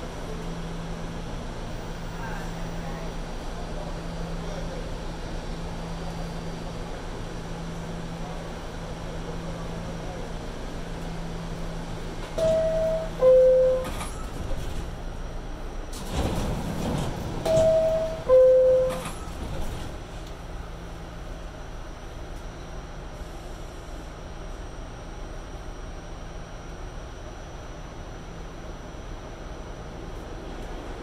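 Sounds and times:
stopped train car hum: 0.0s - 31.0s
two-note door-closing chime: 12.4s - 14.2s, 17.5s - 19.2s.

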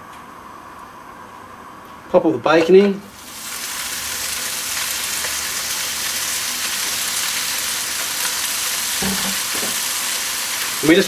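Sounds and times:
bacon sizzling in a frying pan: 3.1s - 11.0s.

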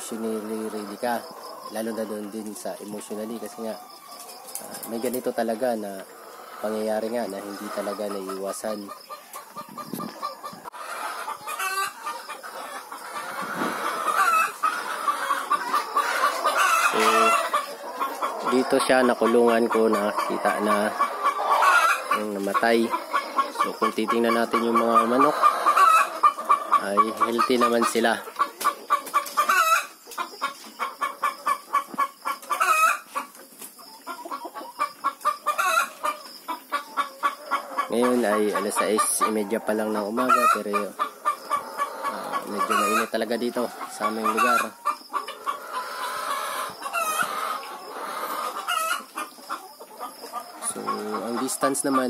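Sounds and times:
chickens clucking: 0.0s - 52.0s
chicken high call: 5.8s - 28.2s, 34.0s - 52.0s.

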